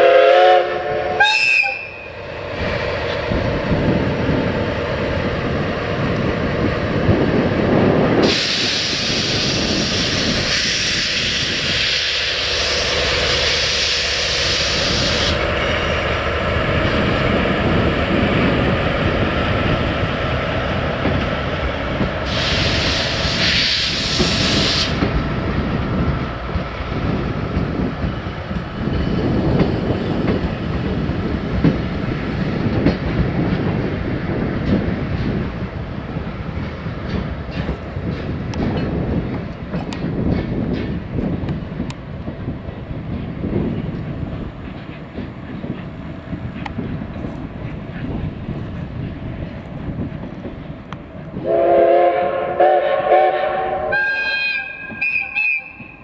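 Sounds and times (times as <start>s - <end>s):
train rumbling on rails: 0.0s - 56.0s
loud steam hiss: 7.7s - 26.6s.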